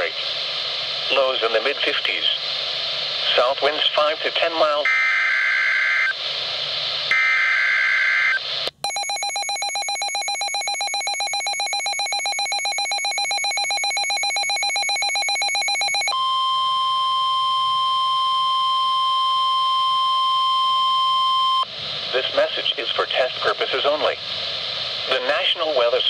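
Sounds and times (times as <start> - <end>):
steady warning alarm tone: 7.1 - 21.7
rapid pulsed alert beeping: 8.8 - 16.2
screechy data bursts: 8.9 - 16.1.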